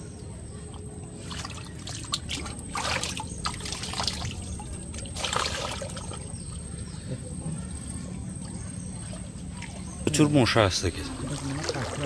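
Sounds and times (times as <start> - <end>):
water splashing and trickling: 0.0 - 12.0
loud splashes: 5.1 - 6.2.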